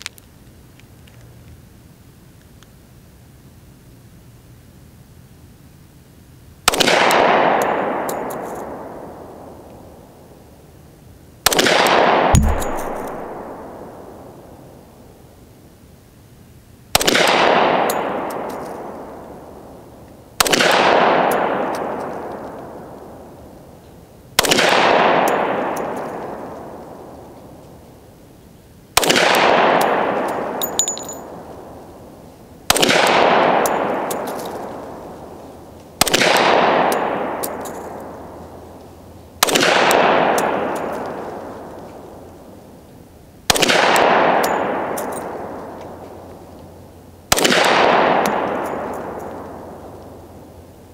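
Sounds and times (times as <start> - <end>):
pistol shots with echo: 11.5 - 14.2, 20.4 - 22.3, 39.4 - 41.3, 43.5 - 46.0, 47.3 - 49.8.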